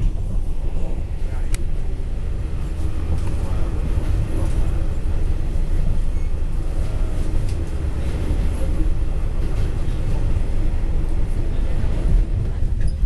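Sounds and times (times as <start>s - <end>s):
train wheels rumbling on rails: 0.0s - 13.0s.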